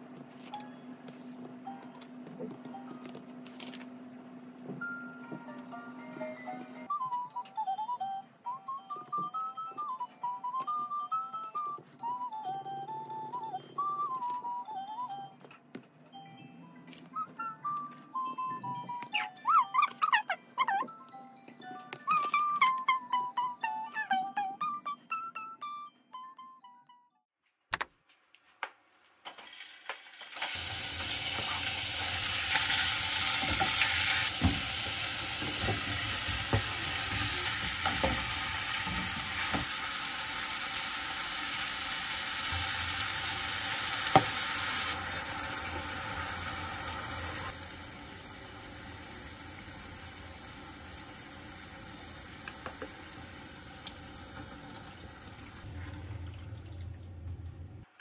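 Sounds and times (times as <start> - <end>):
meat and vegetables sizzling in pot: 29.3 - 56.3.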